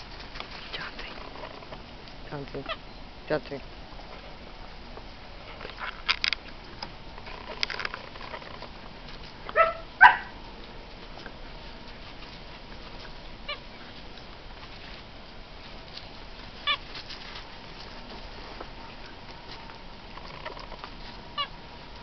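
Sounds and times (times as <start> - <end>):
puppies yelping: 7.2 - 10.4, 12.6 - 14.3, 16.5 - 17.0.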